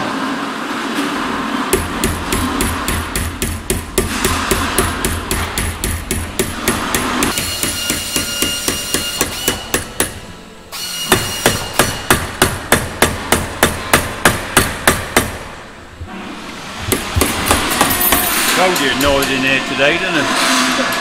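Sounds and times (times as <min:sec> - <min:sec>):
sharp hammer blows: 0:01.6 - 0:15.6, 0:16.8 - 0:21.0.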